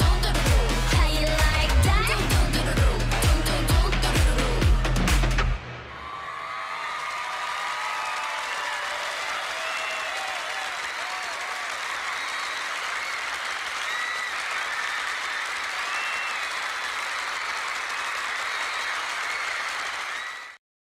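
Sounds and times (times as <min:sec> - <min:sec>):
audience applauding and cheering: 0:05.8 - 0:20.6.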